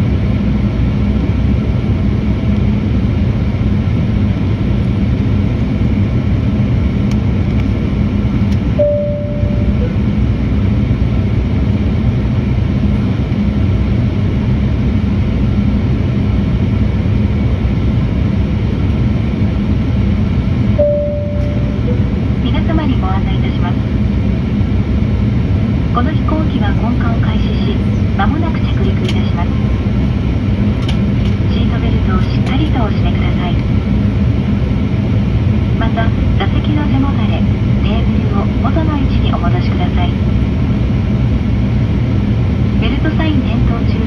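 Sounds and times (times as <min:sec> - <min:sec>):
airliner engines and airflow rushing: 0:00.0 - 0:44.0
low cabin hum: 0:00.0 - 0:44.0
two-note cabin chime: 0:08.8 - 0:10.0, 0:20.8 - 0:22.1
cabin announcement: 0:08.8 - 0:10.2, 0:20.8 - 0:24.0, 0:25.9 - 0:29.8, 0:30.9 - 0:33.7, 0:35.8 - 0:40.2, 0:42.8 - 0:44.0.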